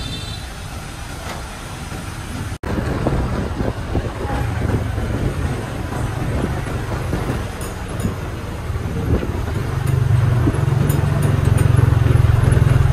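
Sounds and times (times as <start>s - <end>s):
road rumble: 0.0s - 12.9s
street traffic: 0.0s - 12.9s
truck engine: 0.0s - 12.9s
wind buffeting microphone: 1.8s - 12.9s.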